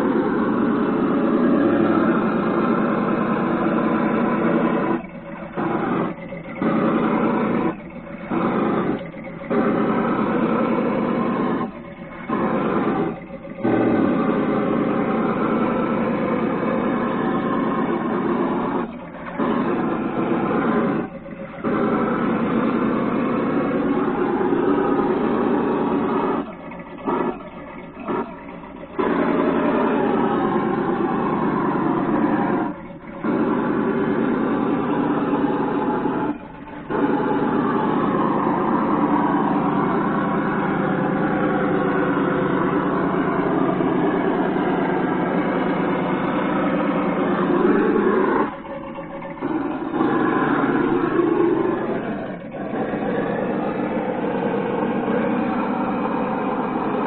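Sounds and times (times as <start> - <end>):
simulated engine sound: 0.0 - 57.0.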